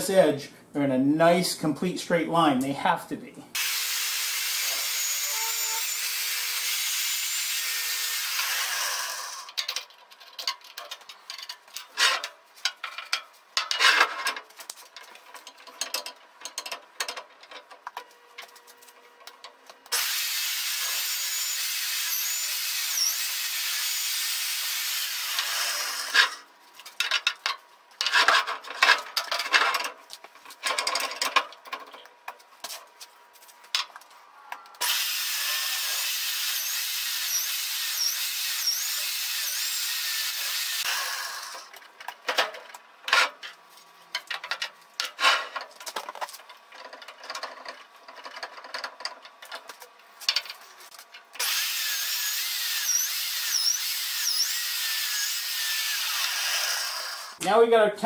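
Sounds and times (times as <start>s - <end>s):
metal chips clattering and scraping: 9.5s - 19.6s, 26.2s - 32.8s, 42.0s - 51.3s
magnetic drill running: 19.9s - 26.1s, 51.4s - 57.4s.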